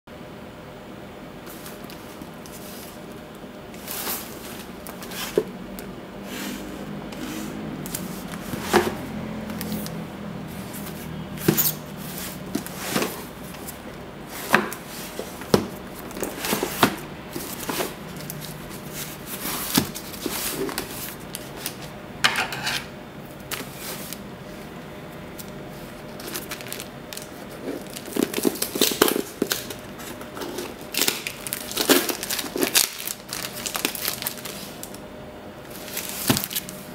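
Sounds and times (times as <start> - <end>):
cardboard box handled on desk: 7.2 - 9.9
plastic wrap crackling: 7.9 - 21.9, 25.3 - 35.0, 35.7 - 36.9.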